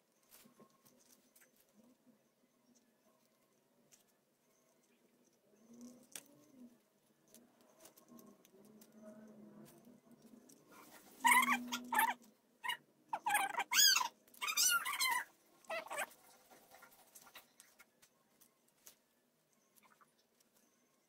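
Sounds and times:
animal high-pitched cries: 0:11.2 - 0:16.1.

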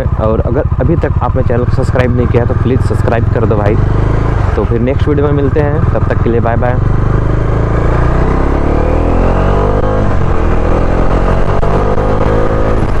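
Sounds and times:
motorcycle engine accelerating: 0:00.0 - 0:13.0.

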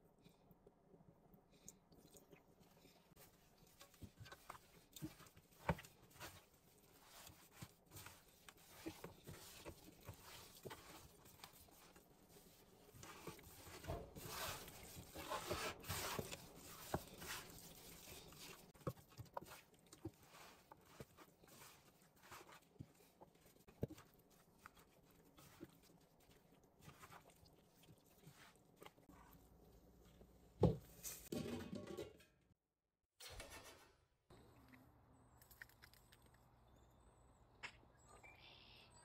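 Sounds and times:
wet squishing of raw chicken: 0:01.5 - 0:30.2.

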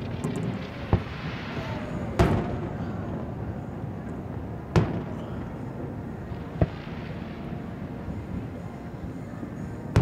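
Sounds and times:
firework shells bursting with booms: 0:00.0 - 0:02.8, 0:04.7 - 0:05.2
steady low rumble: 0:00.0 - 0:10.0.

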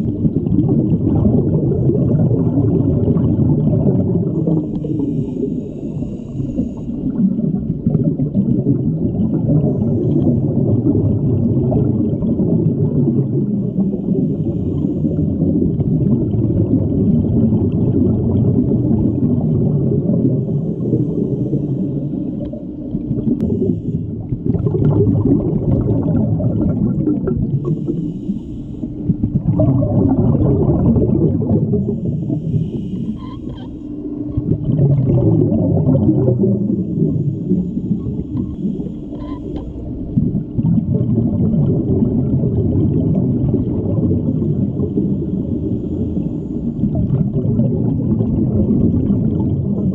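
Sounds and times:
bubbly exhalations: 0:00.0 - 0:05.5, 0:06.2 - 0:28.3, 0:28.9 - 0:49.9
faint steady hum: 0:00.0 - 0:49.9
diver breathing through regulator: 0:04.3 - 0:07.4, 0:13.6 - 0:15.7, 0:20.3 - 0:22.8, 0:27.5 - 0:29.3, 0:31.7 - 0:34.6, 0:36.5 - 0:40.2, 0:44.4 - 0:47.0.

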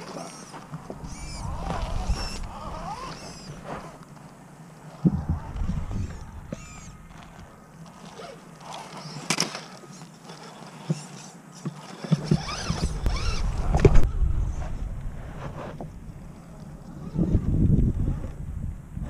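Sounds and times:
rc car motors whining: 0:00.0 - 0:04.1, 0:04.8 - 0:14.7, 0:16.4 - 0:18.4
low rumble: 0:05.0 - 0:07.7, 0:13.0 - 0:19.0.

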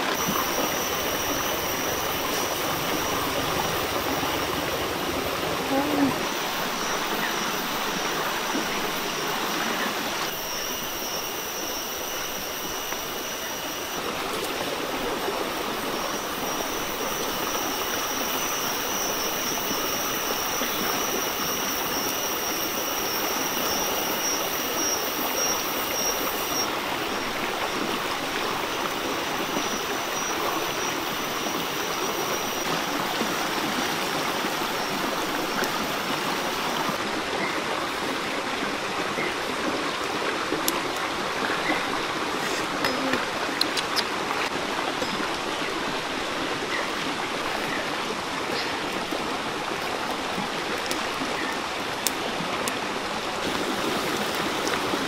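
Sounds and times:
thin high tone: 0:00.0 - 0:32.7
stream running over rocks: 0:00.0 - 0:55.0.

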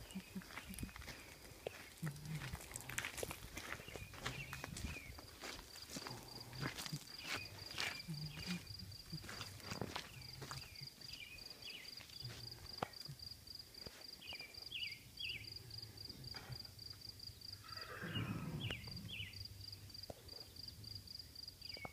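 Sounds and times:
cricket chirping: 0:00.0 - 0:21.9.

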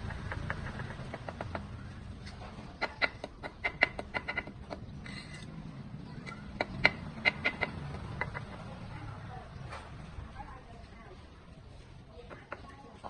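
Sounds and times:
bricks tapped into mortar: 0:00.0 - 0:01.7, 0:02.3 - 0:05.2, 0:06.2 - 0:08.6.

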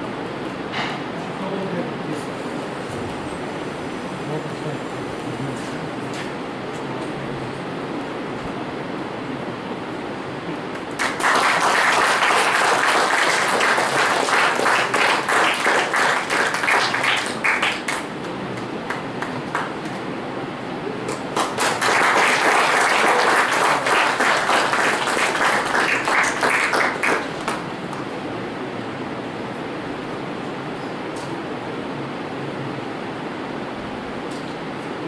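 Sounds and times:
audience applauding: 0:10.8 - 0:20.0, 0:21.0 - 0:28.2.

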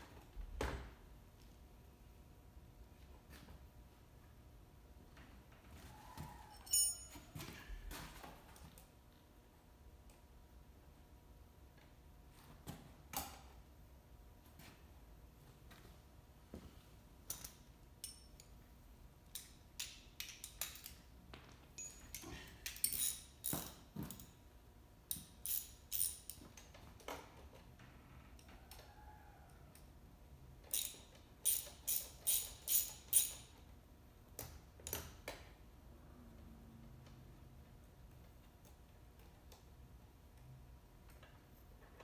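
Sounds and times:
metal clicks of hand tools: 0:19.3 - 0:21.1, 0:21.8 - 0:24.3, 0:30.6 - 0:33.6.

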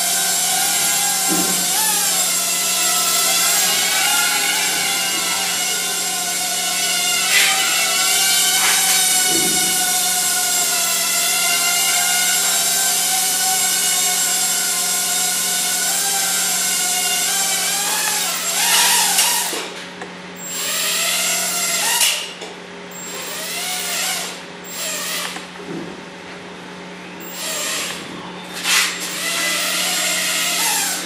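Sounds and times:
quadcopter motors whining: 0:00.0 - 0:19.8, 0:20.4 - 0:25.7, 0:27.2 - 0:31.0.

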